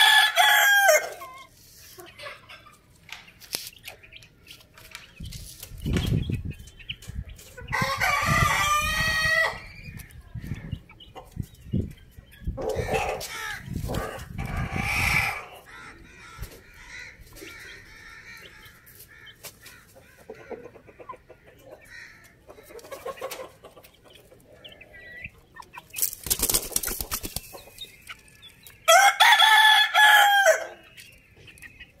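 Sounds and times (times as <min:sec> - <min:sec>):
rooster crowing: 0:00.0 - 0:01.2, 0:28.9 - 0:30.8
hens clucking: 0:00.0 - 0:32.0
rustling noise: 0:04.7 - 0:06.3.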